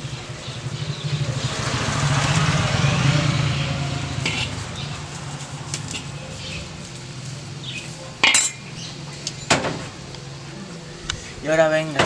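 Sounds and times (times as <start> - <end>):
metal spoon scraping metal pot: 4.2 - 4.6.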